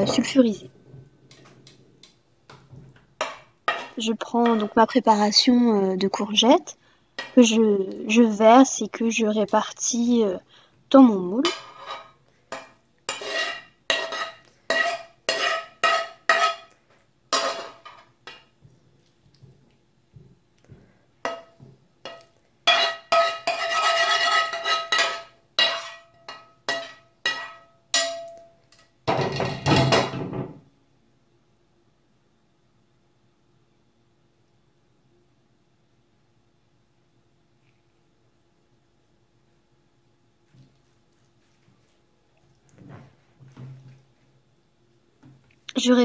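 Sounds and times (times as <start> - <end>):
metal spoon scraping frying pan: 3.2 - 5.0, 11.4 - 18.5, 21.2 - 28.8.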